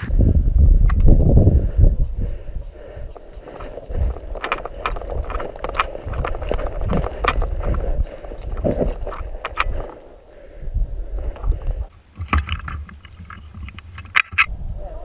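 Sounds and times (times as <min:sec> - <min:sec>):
rumble of movement on microphone: 0:00.0 - 0:14.8
footsteps on paving and grass: 0:02.6 - 0:10.1
carried gear clicking and rattling: 0:02.8 - 0:10.4.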